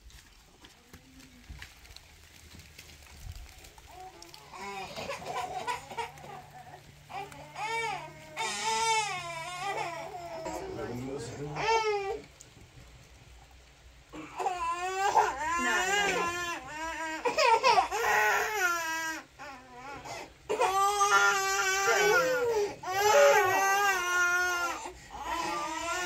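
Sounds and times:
baby crying: 3.9 - 12.3, 14.2 - 26.0.

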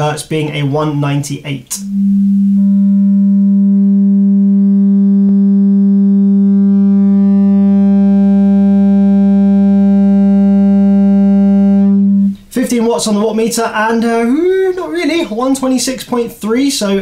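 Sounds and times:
loud distorted test tone: 1.7 - 13.4.

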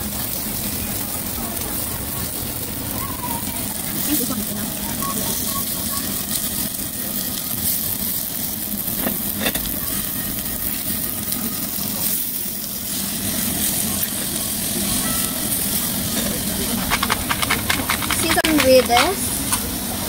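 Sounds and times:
beef sizzling on stone grill: 0.0 - 20.0
steady background hum: 0.0 - 20.0
knife and fork cutting: 16.2 - 19.2
pepper grinder clicks: 16.2 - 19.7.

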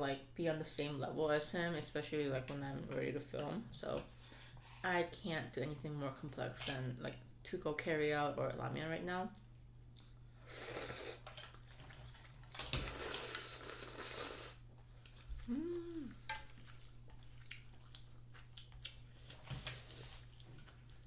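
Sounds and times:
slurping noodles: 10.4 - 11.3, 12.8 - 14.6.

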